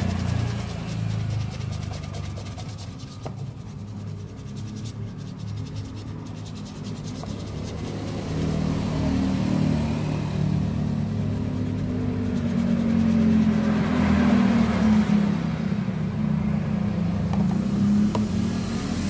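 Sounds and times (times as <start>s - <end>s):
toothbrush scrubbing a boot: 0.0s - 15.0s
vehicle engine drone: 0.0s - 19.0s.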